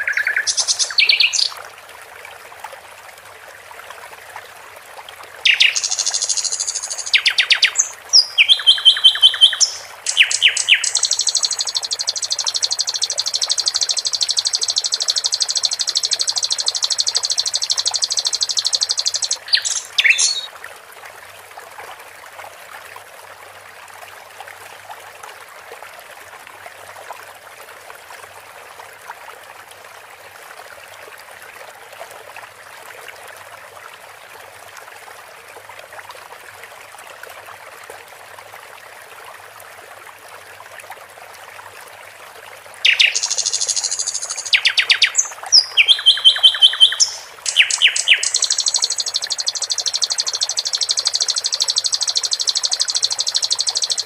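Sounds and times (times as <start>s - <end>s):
songbird singing: 0.0s - 1.5s, 5.4s - 20.5s, 42.8s - 54.0s
running water trickling: 0.0s - 54.0s.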